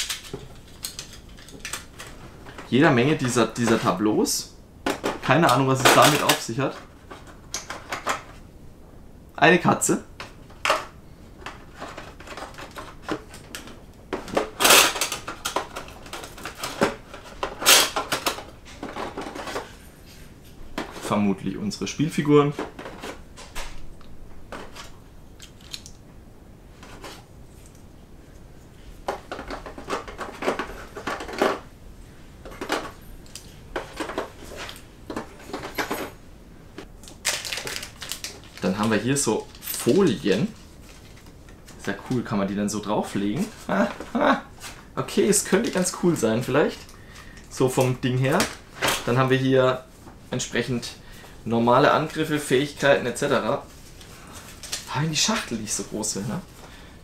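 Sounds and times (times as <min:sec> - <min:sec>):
game pieces clicking and rustling: 0:00.0 - 0:03.8.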